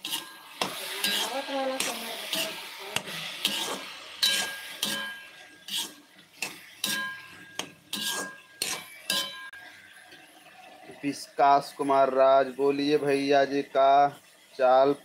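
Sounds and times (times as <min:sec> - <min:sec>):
metal utensil scraping metal pan: 0:00.0 - 0:09.7.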